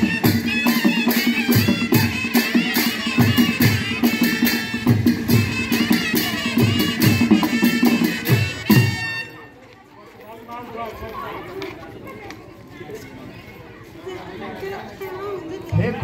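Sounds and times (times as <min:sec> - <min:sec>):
steady drum beat: 0:00.0 - 0:09.2.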